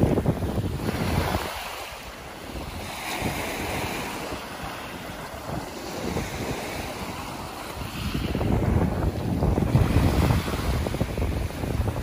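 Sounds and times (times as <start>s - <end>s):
sea waves washing onto shore: 0.0s - 12.0s
wind buffeting microphone: 0.0s - 12.0s.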